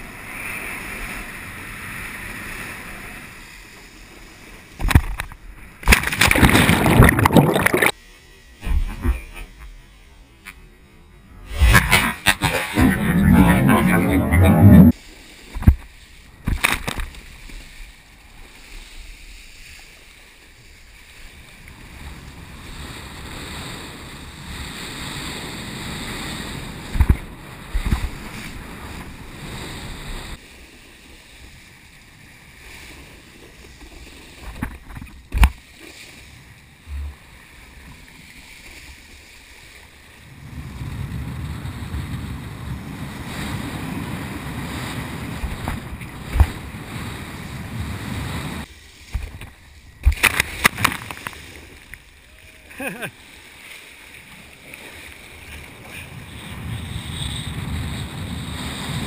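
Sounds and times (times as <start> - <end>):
water rushing and spraying: 5.8 - 8.0, 11.4 - 15.2.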